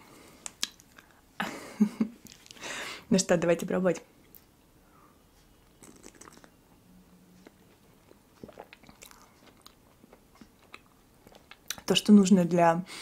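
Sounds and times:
soft mouth clicks: 0.4 - 1.2, 5.7 - 6.6
sipping and swallowing: 5.8 - 6.6, 7.4 - 11.8.

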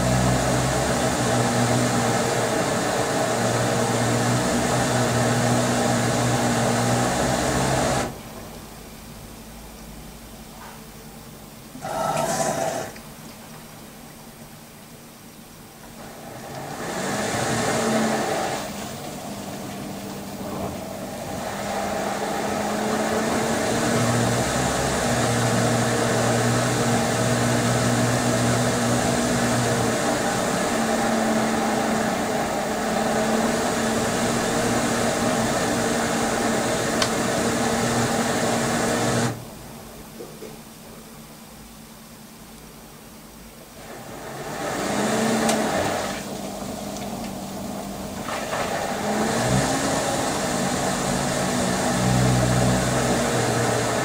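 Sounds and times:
washing machine motor hum: 0.0 - 54.0
wet duvet churning in drum: 16.0 - 39.4, 43.8 - 54.0
water rushing: 43.8 - 54.0.

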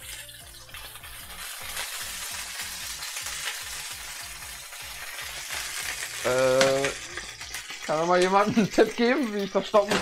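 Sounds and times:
food sizzling in a hot pan: 0.0 - 10.0.

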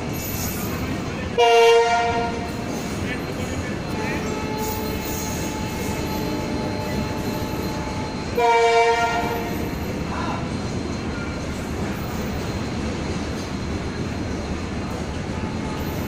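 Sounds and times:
freight wagons rumbling on rails: 0.0 - 16.0
train horn blowing: 1.4 - 2.6, 7.5 - 9.6.

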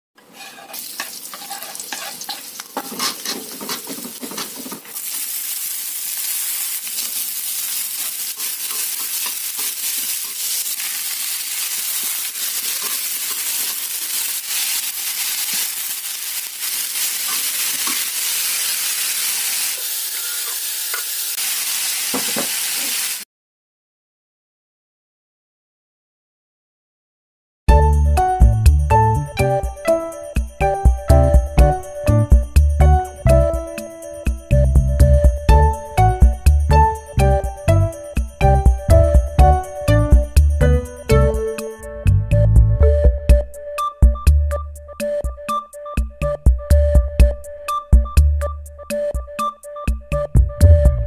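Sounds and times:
spatula scraping and knocking pan: 0.2 - 5.0, 8.0 - 10.5, 12.0 - 13.8, 17.2 - 18.6
vegetables sizzling in a wok: 0.3 - 23.2.

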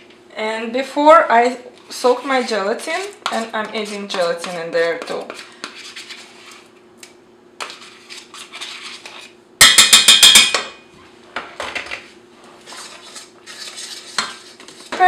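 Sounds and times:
spoon clinking against saucepan: 9.6 - 10.8
utensils knocking and scraping: 9.6 - 10.8.

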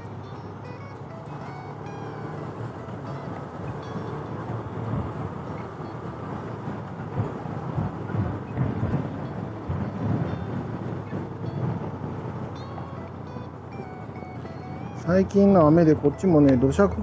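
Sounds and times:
motorcycle engine running: 0.0 - 17.0
wind buffeting microphone: 0.1 - 17.0.

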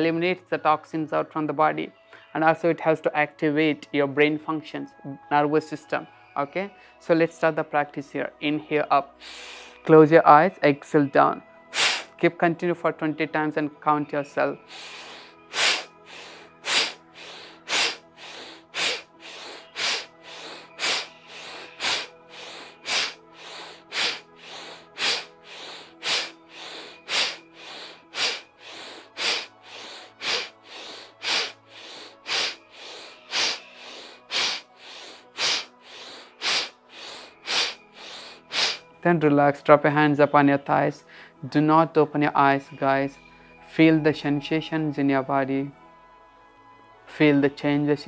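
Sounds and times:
quiet background music: 0.0 - 48.0
man breathing forcefully: 9.2 - 9.8, 11.7 - 12.2, 14.6 - 38.9.

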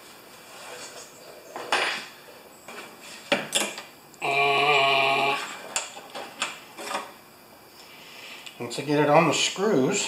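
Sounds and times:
man groaning: 4.2 - 5.6.

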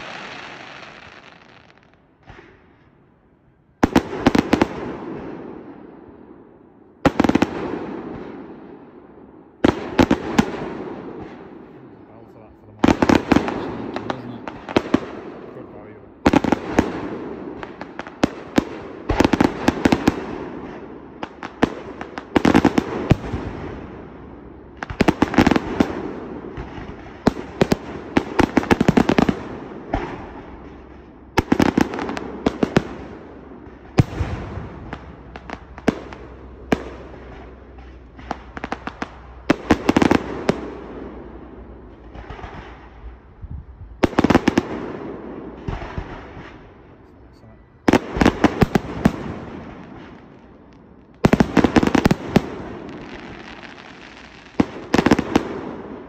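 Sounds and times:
fireworks bangs with crackle: 0.0 - 2.9, 3.8 - 5.9, 7.0 - 56.0.

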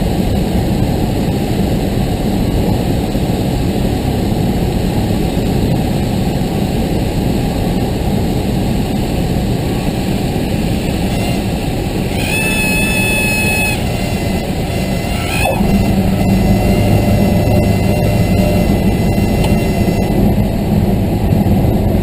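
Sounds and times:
small plane engine and airflow: 0.0 - 22.0
steady high tone: 11.0 - 20.6.

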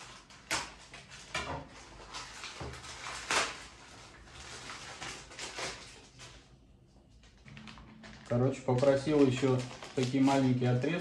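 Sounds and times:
packaging rustling and handling: 0.0 - 11.0.

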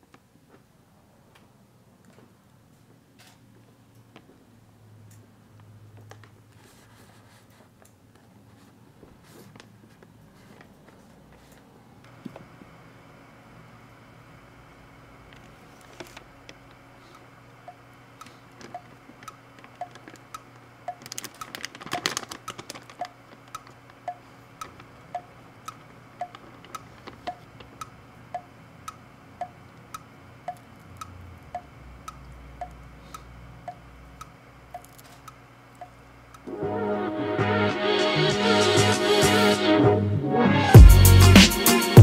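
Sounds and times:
foil bag crinkling: 15.7 - 16.8, 18.3 - 24.0, 26.3 - 27.8
clock ticking: 17.6 - 36.5.

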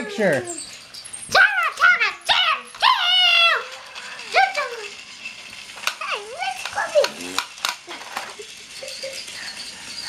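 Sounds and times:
person whining: 0.0 - 0.7
plastic toy train pieces clattering: 0.0 - 10.0.

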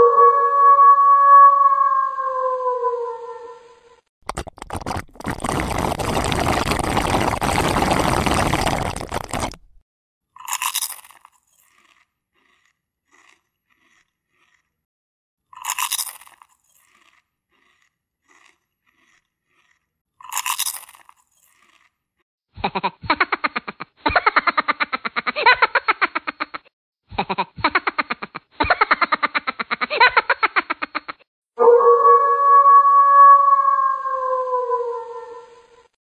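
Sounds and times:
loud crunching chewing: 10.4 - 22.2.

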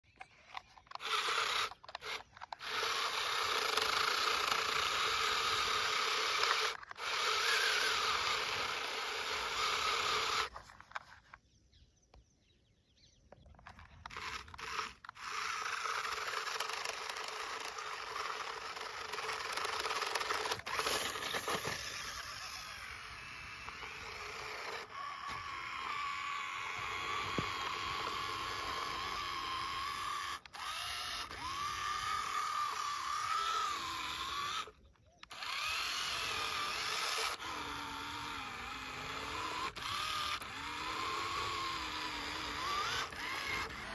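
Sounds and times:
electric motor whining: 0.1 - 11.2, 13.6 - 43.9
grit scraping under tyres: 20.2 - 22.6.

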